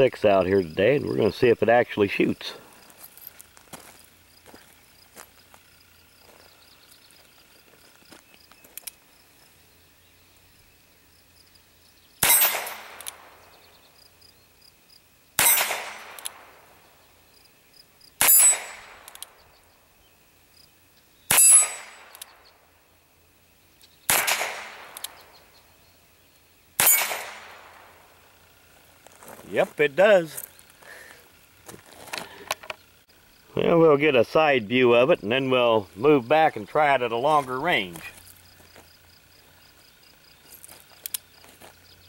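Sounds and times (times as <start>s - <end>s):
revolver shots: 12.2s - 13.3s, 15.4s - 16.6s, 24.1s - 25.2s, 26.8s - 28.0s
steel targets ringing: 26.8s - 27.5s.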